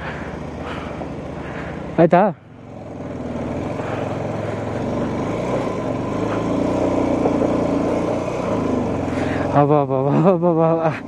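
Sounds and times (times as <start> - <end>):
vehicle engine under load: 0.0 - 11.0.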